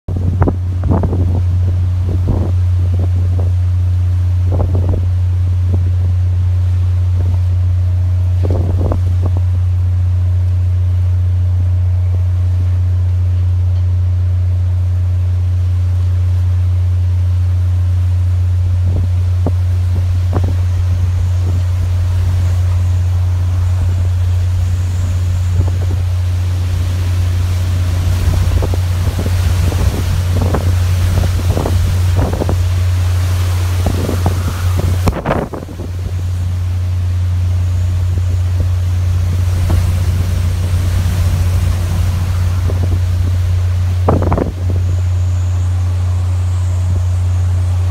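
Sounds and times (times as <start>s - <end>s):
wind gusting over microphone: 0.0s - 13.2s, 14.3s - 47.9s
wind and rain hiss: 0.1s - 47.9s
wind buffeting knocks: 18.8s - 45.8s.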